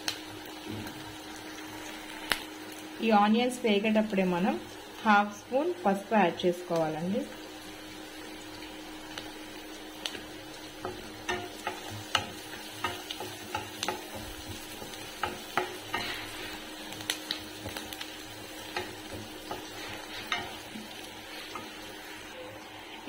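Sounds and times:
onions sizzling in oil: 0.0 - 23.0
wooden spatula scraping pan: 11.3 - 16.7, 18.8 - 22.3.

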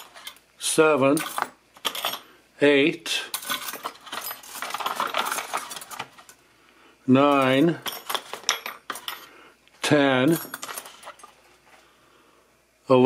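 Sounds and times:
small metal parts clinking: 0.0 - 0.4, 1.1 - 2.3, 3.3 - 6.4, 7.2 - 9.3, 10.2 - 11.5.

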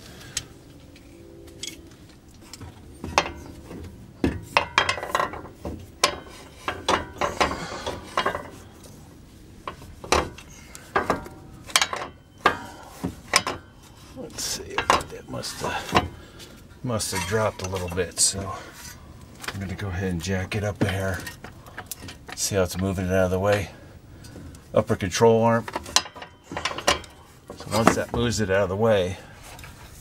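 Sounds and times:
metallic knocks and rattles: 1.6 - 9.0, 9.6 - 23.7, 25.5 - 28.6.

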